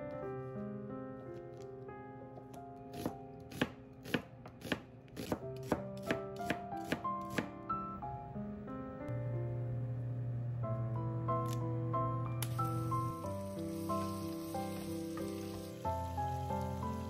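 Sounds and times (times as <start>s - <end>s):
soft background music: 0.0s - 17.0s
knife slicing onion on board: 2.9s - 7.5s.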